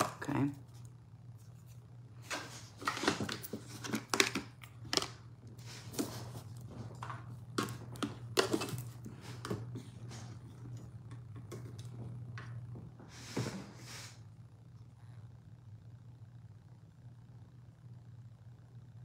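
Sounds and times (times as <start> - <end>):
steady low hum: 0.0 - 19.0
objects knocking and clicking: 2.3 - 5.2, 5.9 - 12.6.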